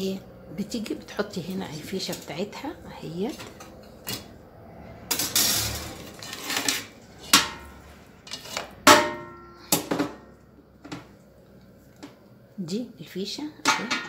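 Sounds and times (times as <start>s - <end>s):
cookware and grill rack clattering: 1.3s - 4.4s, 5.1s - 10.3s, 13.6s - 14.0s
scraping rustle: 5.2s - 7.3s.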